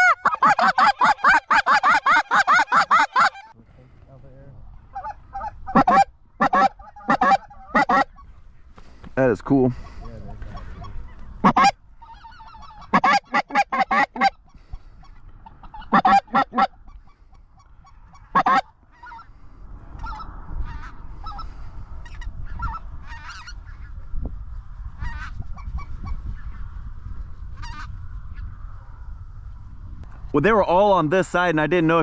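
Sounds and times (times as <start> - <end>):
chorus of geese calling: 0.0 - 3.6, 4.9 - 8.4, 9.7 - 24.0, 27.6 - 28.0
geese honking: 0.0 - 3.6, 4.9 - 8.3, 9.7 - 19.3, 20.0 - 23.9, 25.0 - 26.2, 27.6 - 28.0.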